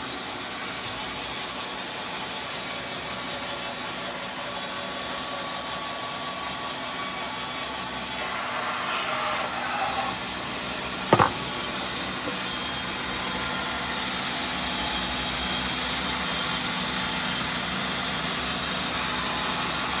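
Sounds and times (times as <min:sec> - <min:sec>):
sharp knock: 0:11.1 - 0:11.5
band saw cutting wood: 0:11.1 - 0:12.4.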